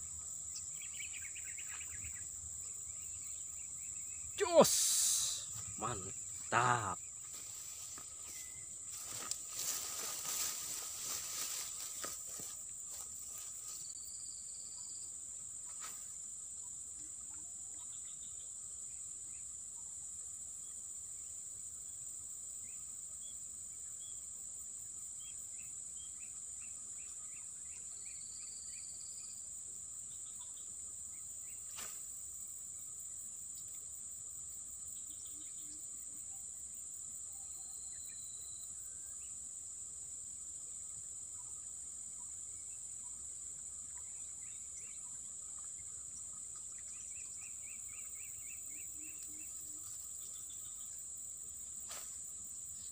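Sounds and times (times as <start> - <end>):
faint bird chirps: 0.0 - 12.4, 37.3 - 39.4
insects droning: 0.0 - 52.9.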